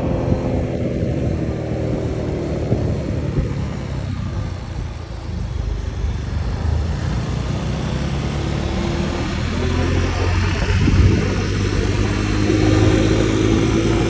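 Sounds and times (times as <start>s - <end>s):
motor scooter engine: 0.0s - 14.0s
passing vehicles: 0.0s - 14.0s.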